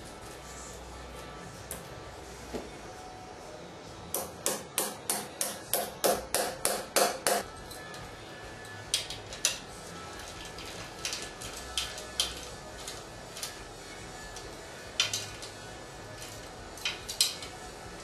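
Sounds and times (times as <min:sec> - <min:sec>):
hammer striking metal anchors: 0:04.1 - 0:07.5.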